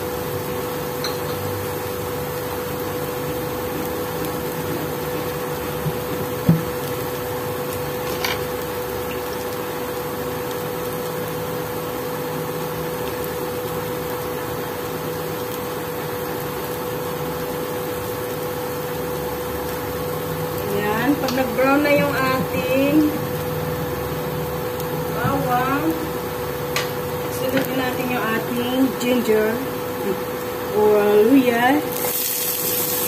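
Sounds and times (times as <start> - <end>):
induction cooktop humming: 0.0 - 33.0.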